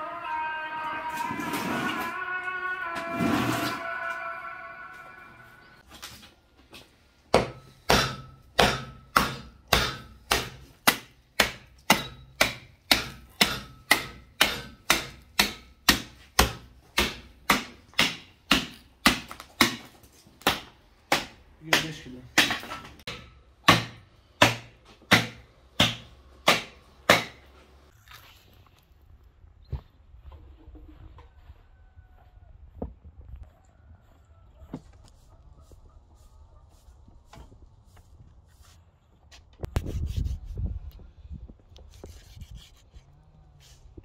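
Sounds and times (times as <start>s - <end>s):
cleaver chopping through bones: 7.3s - 27.4s.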